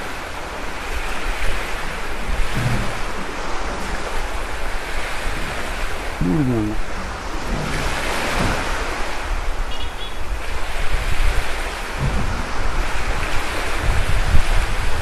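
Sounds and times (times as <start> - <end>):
wind buffeting microphone: 10.3 - 15.0.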